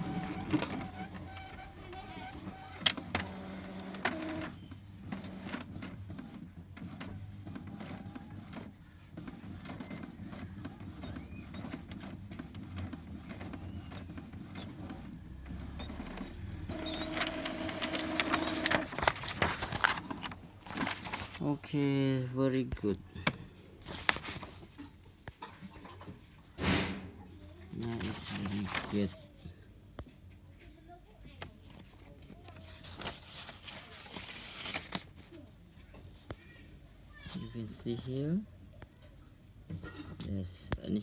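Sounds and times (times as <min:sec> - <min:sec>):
printer mechanism ticking and clicking: 0:00.0 - 0:04.5, 0:05.1 - 0:20.1
printer motor whine: 0:00.0 - 0:05.6, 0:15.4 - 0:19.0.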